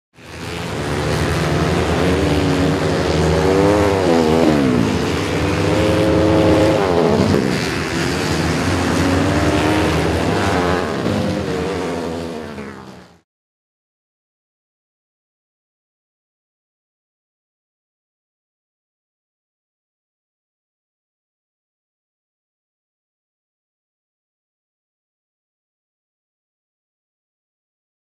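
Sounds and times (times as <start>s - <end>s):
dirt bike engines revving: 0.2s - 13.2s
low engine drone: 0.2s - 13.2s.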